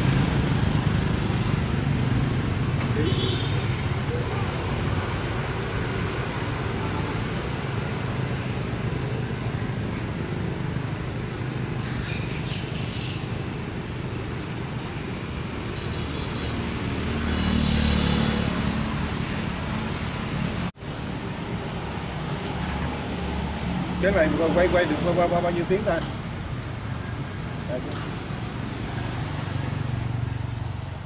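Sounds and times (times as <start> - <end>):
road traffic rumble: 0.0 - 31.0
vehicle passing: 16.6 - 20.7.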